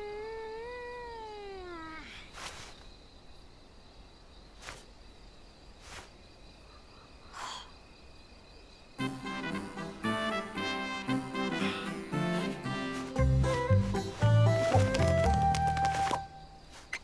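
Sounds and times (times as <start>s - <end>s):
jazzy brass music: 9.0s - 15.5s.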